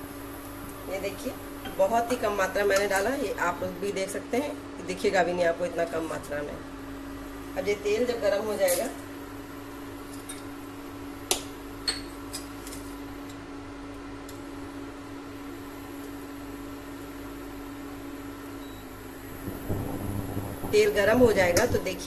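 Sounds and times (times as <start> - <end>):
cooktop electrical hum: 0.0 - 22.0.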